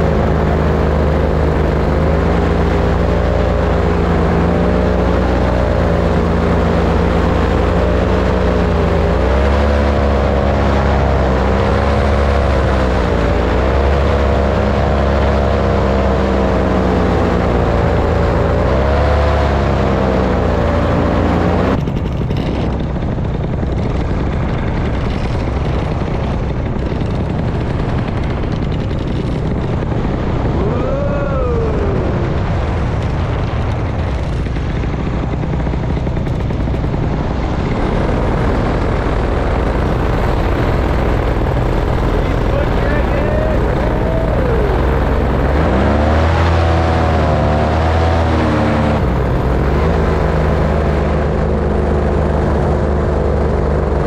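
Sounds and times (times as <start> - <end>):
paramotor engine and propeller: 0.0 - 54.0
wind rushing: 20.4 - 54.0
falling tone: 37.3 - 51.7.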